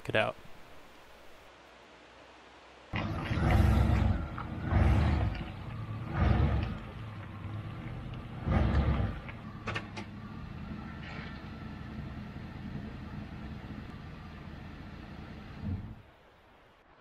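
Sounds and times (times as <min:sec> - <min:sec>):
van engine running: 0:03.0 - 0:16.1.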